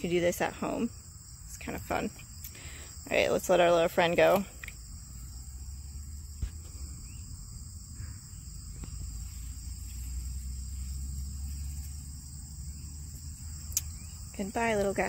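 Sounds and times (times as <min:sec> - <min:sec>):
insects trilling: 0:00.0 - 0:15.0
low steady rumble: 0:03.1 - 0:15.0.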